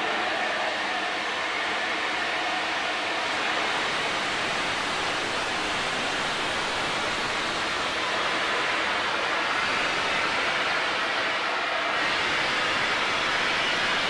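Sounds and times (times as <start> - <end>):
steam locomotive hissing steam: 3.1 - 14.0.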